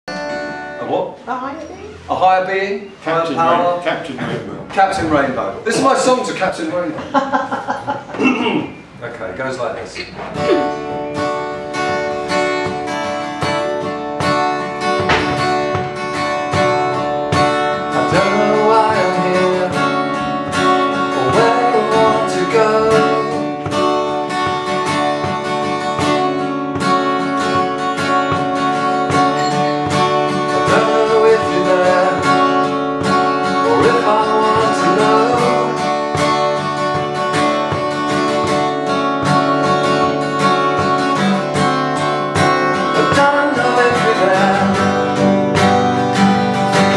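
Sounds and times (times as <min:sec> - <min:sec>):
acoustic guitar strumming: 0:00.0 - 0:46.9
man singing: 0:17.8 - 0:23.8, 0:30.5 - 0:32.8, 0:33.4 - 0:36.2, 0:42.5 - 0:46.9.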